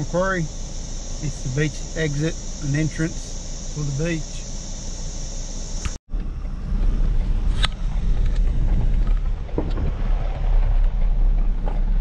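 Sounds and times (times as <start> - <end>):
engine and road rumble: 0.0 - 12.0
knocks and rattles: 7.1 - 12.0.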